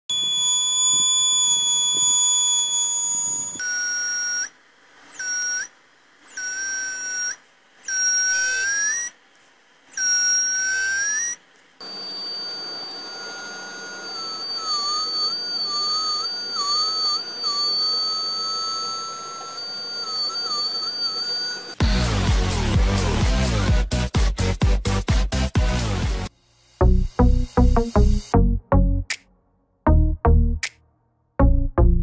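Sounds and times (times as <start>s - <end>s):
high-pitched alarm buzzer beeping: 0.1s - 4.5s, 5.1s - 5.7s, 6.3s - 9.1s, 10.0s - 21.8s.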